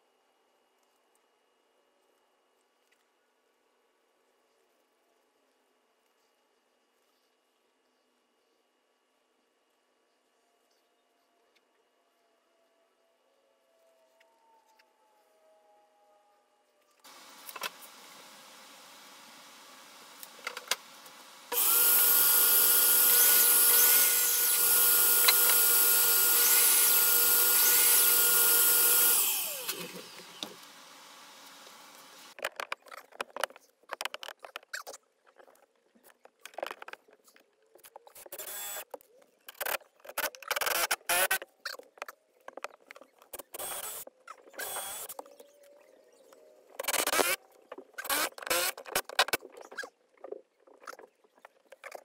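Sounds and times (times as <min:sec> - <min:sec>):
miter saw motor cutting board: 0:17.1 - 0:32.4, 0:38.3 - 0:38.8, 0:40.6 - 0:41.4, 0:43.4 - 0:44.0, 0:44.6 - 0:45.2, 0:46.8 - 0:47.4, 0:48.0 - 0:49.3.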